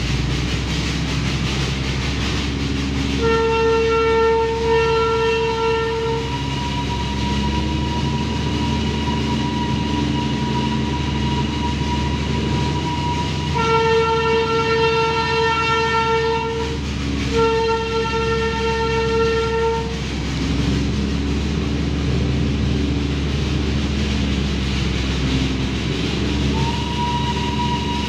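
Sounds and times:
diesel engine running: 0.0 - 28.0
locomotive horn blasts: 3.1 - 20.0, 26.5 - 28.0.

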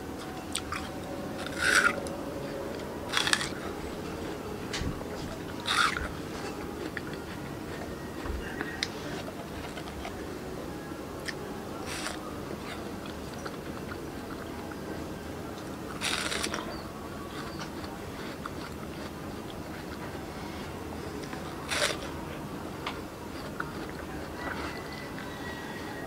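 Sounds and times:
faint chewing: 0.2 - 10.5, 11.2 - 26.0
crunchy bites into watermelon: 3.1 - 3.6, 16.0 - 16.7, 21.6 - 22.1.

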